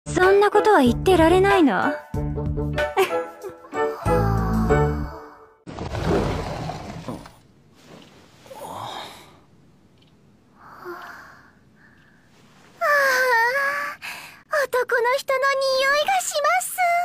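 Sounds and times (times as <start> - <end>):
faint breathing: 8.3 - 9.5, 10.5 - 12.6, 14.0 - 14.5.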